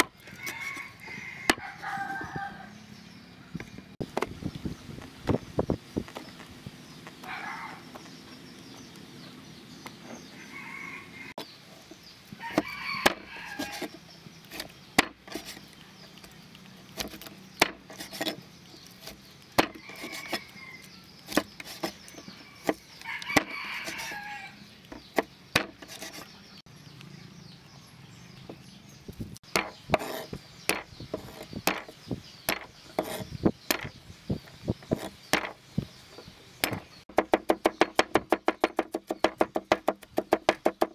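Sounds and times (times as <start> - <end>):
rooster crowing: 0.2 - 2.8, 10.3 - 11.4, 12.4 - 13.9, 19.8 - 20.9, 22.4 - 24.6
knife chopping on wooden board: 14.6 - 15.5, 19.0 - 20.4, 29.5 - 31.9, 32.5 - 33.9, 34.9 - 35.6, 36.6 - 40.9.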